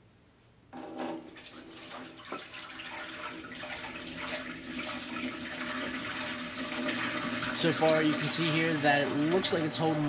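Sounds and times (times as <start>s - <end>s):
water splashing into glass tank: 0.8s - 10.0s.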